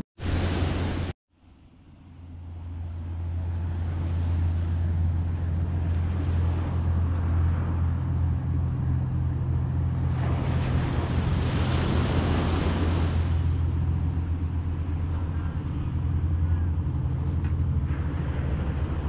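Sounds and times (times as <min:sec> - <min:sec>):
low engine hum: 0:00.0 - 0:19.0
waves washing over rocks: 0:09.8 - 0:15.1.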